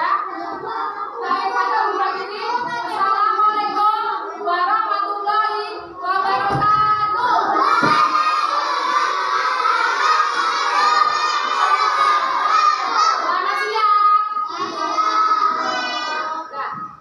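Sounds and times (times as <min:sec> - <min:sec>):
children singing together: 0:00.0 - 0:17.0.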